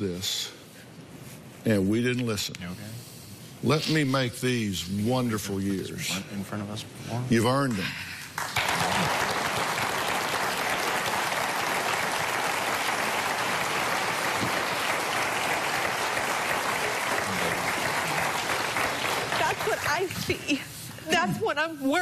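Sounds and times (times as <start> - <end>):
audience applauding: 8.4 - 20.5.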